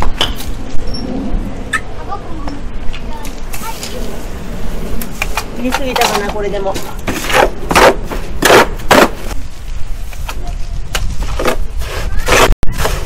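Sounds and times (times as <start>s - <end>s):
hoe scraping through wet mortar: 6.0s - 9.4s, 11.2s - 13.0s.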